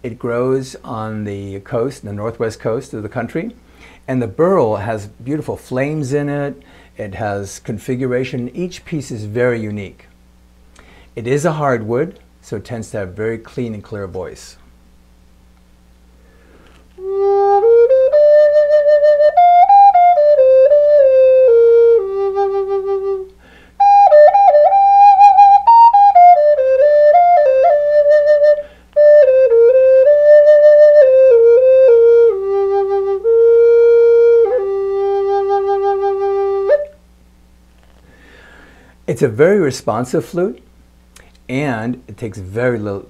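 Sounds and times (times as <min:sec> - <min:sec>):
wooden flute melody: 0:17.0 - 0:37.0.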